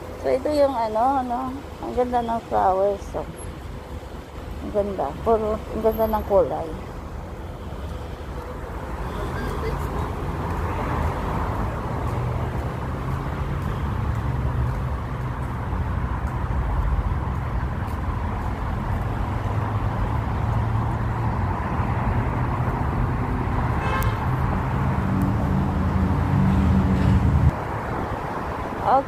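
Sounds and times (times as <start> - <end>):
road traffic rumble: 0.0 - 29.0
car horn toot: 9.0 - 9.8, 23.8 - 24.3.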